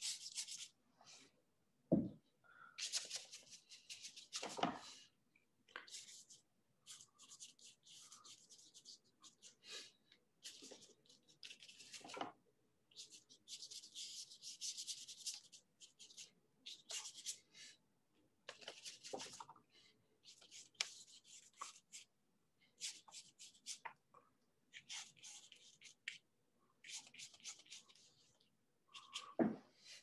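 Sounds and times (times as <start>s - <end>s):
paintbrush scrubbing on paper: 0.0s - 0.8s, 2.8s - 4.6s, 5.8s - 12.2s, 12.9s - 17.5s, 20.2s - 22.1s, 22.8s - 23.9s, 24.7s - 26.2s, 26.8s - 30.0s.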